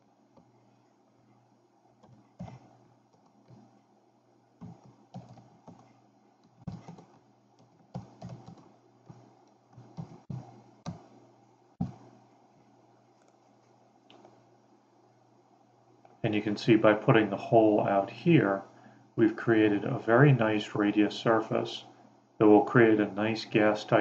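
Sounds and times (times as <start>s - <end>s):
keyboard typing: 2.0s - 3.8s, 4.6s - 11.1s.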